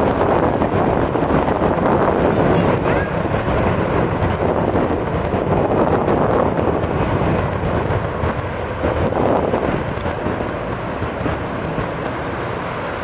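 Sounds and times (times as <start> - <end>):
distant jet engines rumbling: 0.0 - 13.0.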